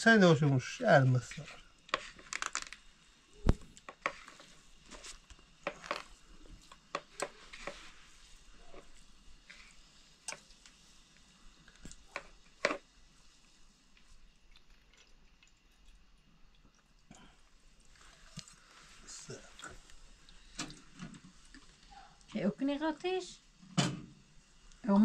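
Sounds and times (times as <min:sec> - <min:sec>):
clicks and knocks of objects handled: 0:01.4 - 0:02.8, 0:03.4 - 0:07.9, 0:11.7 - 0:12.8.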